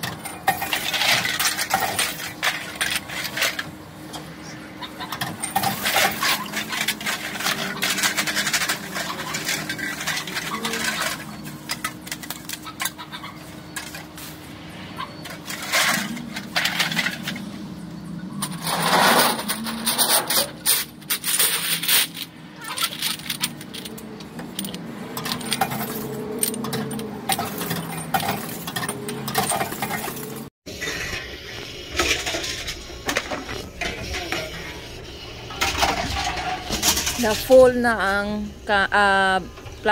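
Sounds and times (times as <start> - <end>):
containers clinking and rattling: 0.0 - 4.2, 5.0 - 14.3, 15.2 - 17.6, 18.3 - 30.5, 35.5 - 38.2
low machine hum: 0.0 - 39.9.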